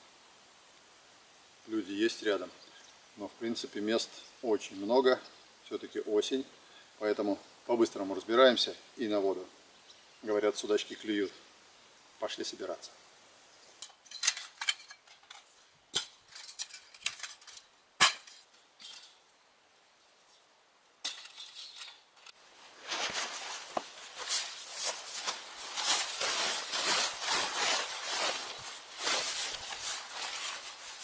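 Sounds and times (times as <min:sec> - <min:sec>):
metal poles clinking: 0:13.8 - 0:19.2, 0:21.0 - 0:31.0
tarpaulin crinkling rustle: 0:22.2 - 0:31.0.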